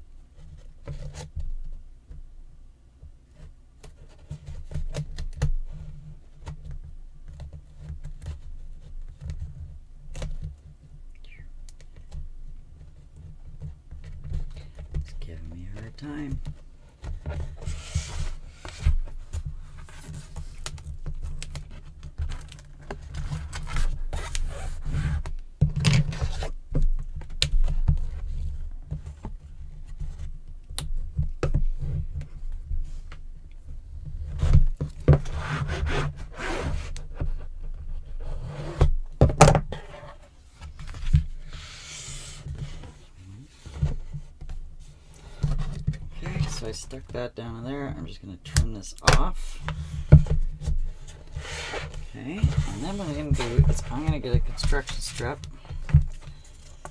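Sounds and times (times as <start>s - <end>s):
board and paper scraping: 17.0s - 20.6s, 34.2s - 38.9s, 39.7s - 47.2s, 48.7s - 56.9s.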